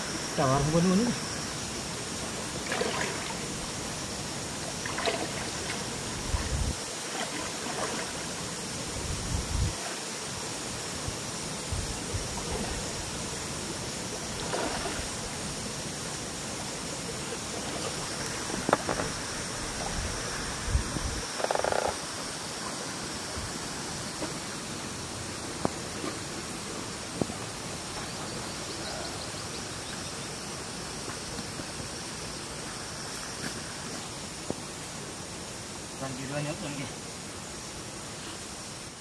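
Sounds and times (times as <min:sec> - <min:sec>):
river water flowing over rocks: 0:00.0 - 0:39.0
splashes of wading: 0:02.4 - 0:03.9, 0:04.6 - 0:08.6, 0:14.1 - 0:15.4.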